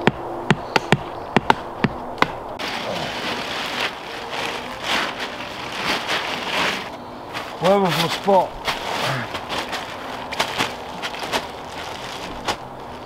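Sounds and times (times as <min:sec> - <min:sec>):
tarp rustling: 0:02.6 - 0:13.0.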